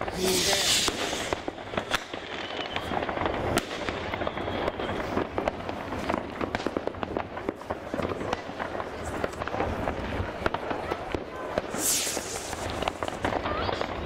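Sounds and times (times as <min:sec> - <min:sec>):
fireworks and firecrackers banging: 0:00.0 - 0:14.0
loud hiss: 0:00.2 - 0:01.5, 0:11.7 - 0:13.1.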